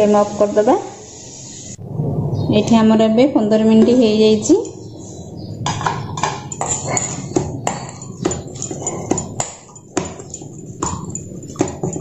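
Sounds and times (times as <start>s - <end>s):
dough knocking on metal bowl: 5.6s - 12.0s.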